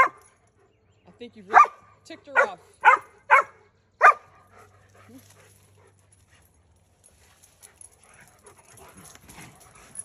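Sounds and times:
dog barking: 1.5s - 4.5s.

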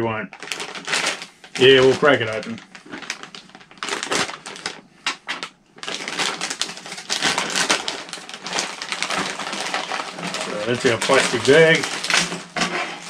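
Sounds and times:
plastic bag clicks and rustles: 0.3s - 13.0s
plastic bag crinkling: 0.3s - 13.0s.

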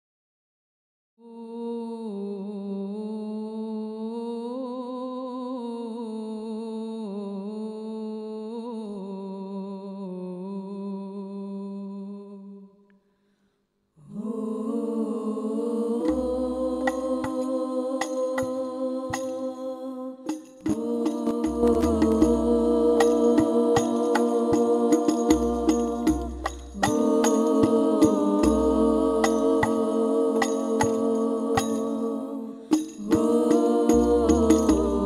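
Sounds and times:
women singing unaccompanied: 1.2s - 12.8s, 14.0s - 35.0s
frame drums struck by hand: 16.1s - 19.5s, 20.3s - 32.0s, 32.6s - 35.0s.

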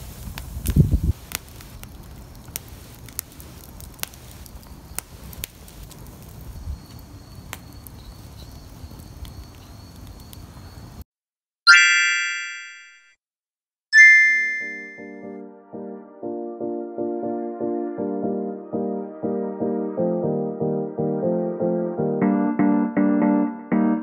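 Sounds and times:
wood fire crackling and popping: 0.0s - 11.0s
bright chime: 14.0s - 15.2s.

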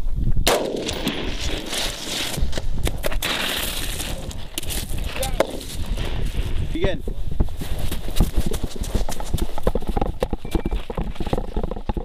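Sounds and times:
running footsteps on snow: 3.5s - 11.8s.

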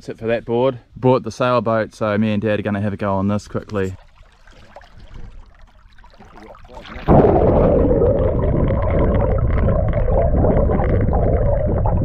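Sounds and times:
muffled underwater rush of water: 4.0s - 12.0s.

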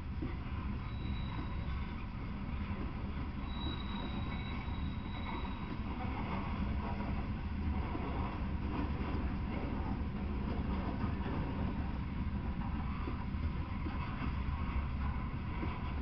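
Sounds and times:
train wheels rumbling on rails: 0.0s - 16.0s
high wheel squeal: 0.8s - 6.0s.

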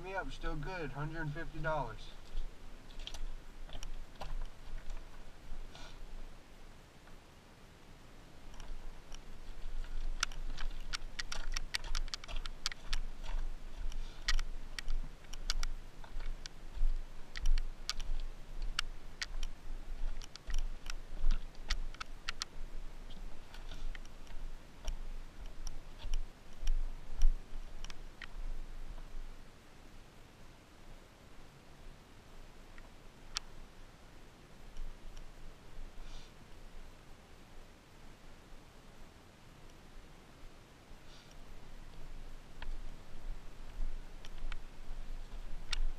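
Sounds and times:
footsteps crunching on rubble: 0.5s - 6.2s, 8.6s - 29.1s
stones clicking together: 8.5s - 16.6s, 17.3s - 22.6s.

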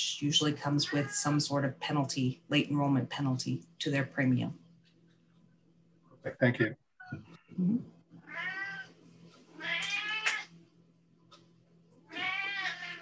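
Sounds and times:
cat meowing: 8.2s - 8.9s, 9.6s - 10.5s, 12.1s - 13.0s.

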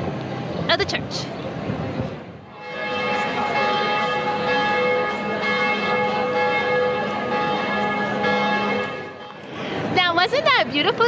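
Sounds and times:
church bells ringing: 2.5s - 9.5s.

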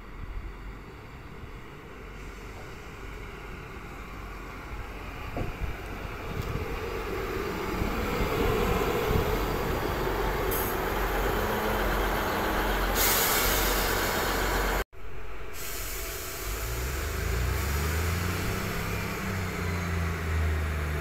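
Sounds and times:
train engine and wheels rumbling: 0.0s - 21.0s
air brakes hissing: 2.1s - 3.2s, 10.4s - 11.1s, 12.4s - 14.8s, 15.5s - 19.6s.

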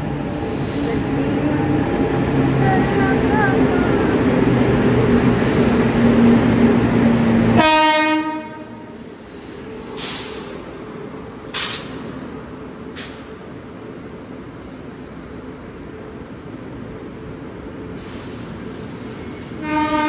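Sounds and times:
train rumble: 0.0s - 14.8s
train horn blast: 7.5s - 8.7s, 19.6s - 20.0s.

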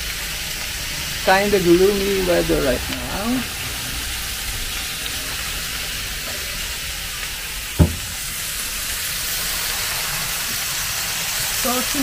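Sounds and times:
beef sizzling on griddle: 0.0s - 12.0s
short thump: 7.8s - 8.2s.

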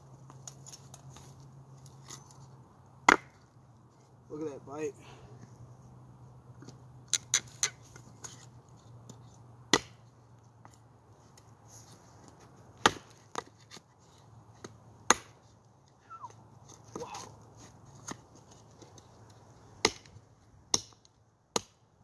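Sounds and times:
knife chopping into wood: 3.1s - 3.4s, 9.7s - 10.0s, 12.8s - 13.5s, 15.1s - 15.4s, 19.8s - 20.1s.

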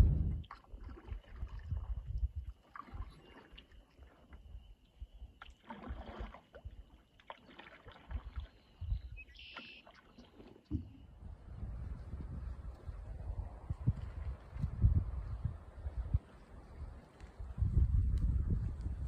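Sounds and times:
low rumbles: 0.0s - 0.5s
paddle strokes in water: 0.0s - 19.0s.

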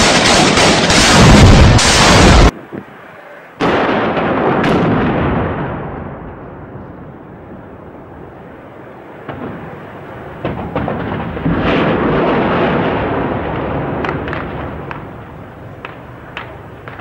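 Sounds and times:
gunfire cracks: 0.0s - 2.5s, 3.6s - 5.6s
loud rushing blast: 0.0s - 2.6s.

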